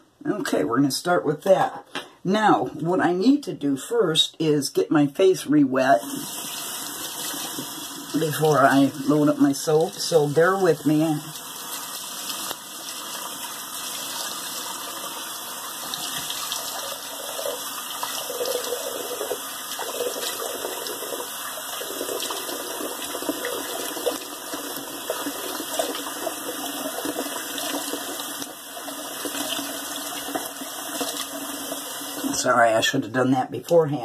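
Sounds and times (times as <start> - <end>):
sink tap running: 6.0 - 32.4.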